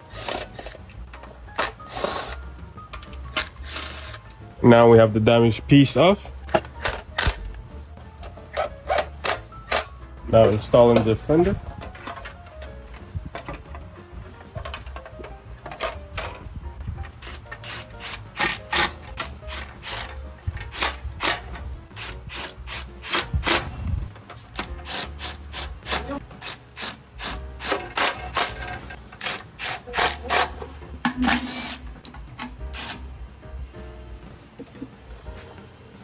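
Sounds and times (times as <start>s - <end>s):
ratchet wrench clicking: 17.2s - 23.6s, 24.6s - 30.5s.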